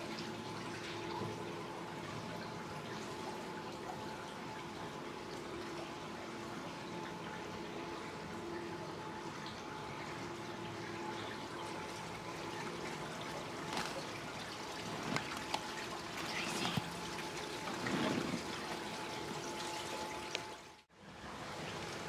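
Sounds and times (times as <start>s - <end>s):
faint steady hum: 0.0s - 22.0s
water lapping along boat hull: 9.0s - 20.7s.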